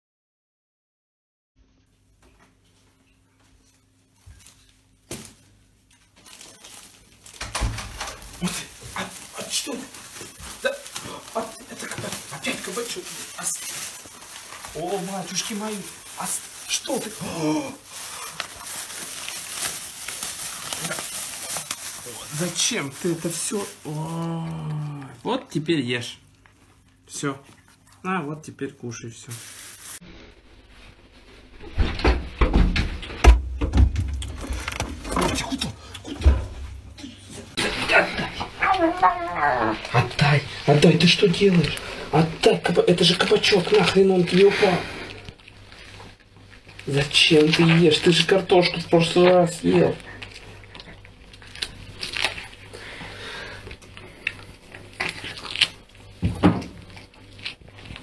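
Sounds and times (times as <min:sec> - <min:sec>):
refrigerator door opening: 0:07.4 - 0:08.3, 0:31.7 - 0:37.0
cat chewing with wet crunches: 0:24.6 - 0:28.4, 0:49.2 - 0:56.2
knocks and thumps: 0:31.6 - 0:35.5.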